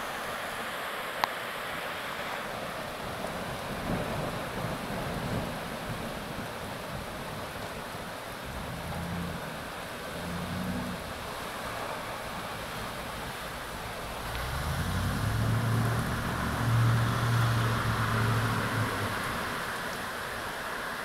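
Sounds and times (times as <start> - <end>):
heavy rain hissing: 0.0 - 21.0.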